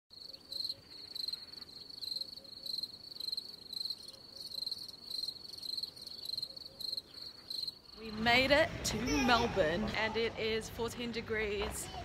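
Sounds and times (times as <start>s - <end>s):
crickets trilling: 0.2s - 8.0s.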